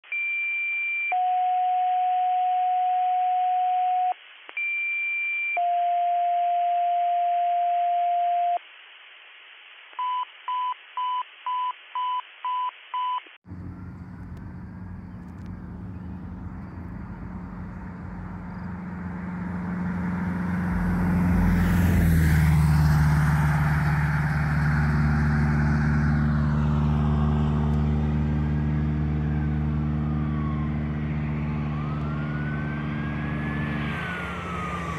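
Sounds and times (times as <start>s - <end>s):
faint siren: 13.5s - 34.9s
vehicle passing: 13.5s - 34.9s.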